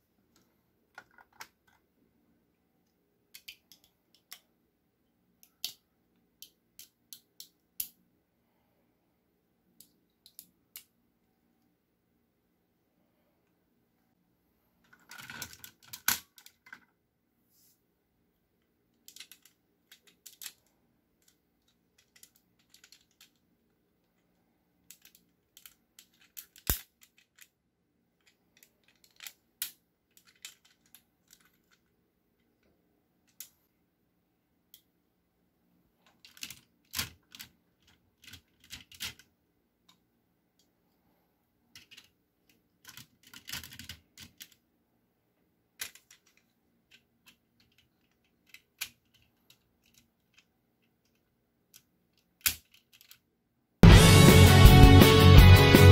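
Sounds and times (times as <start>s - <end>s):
plastic toy parts clicking: 0.3s - 1.8s, 3.3s - 4.6s, 5.4s - 8.0s, 9.8s - 10.9s, 14.9s - 16.9s, 18.9s - 33.7s, 36.0s - 40.0s, 41.7s - 44.6s, 45.8s - 53.3s.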